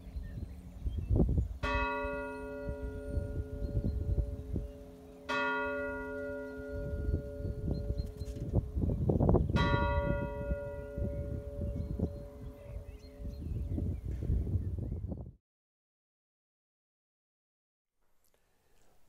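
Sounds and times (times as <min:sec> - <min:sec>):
church bell tolling: 0:01.6 - 0:13.4.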